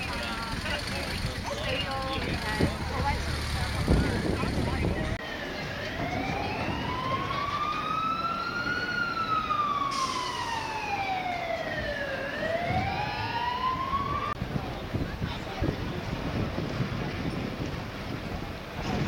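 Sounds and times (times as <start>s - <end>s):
emergency vehicle siren wailing: 1.4s - 14.4s.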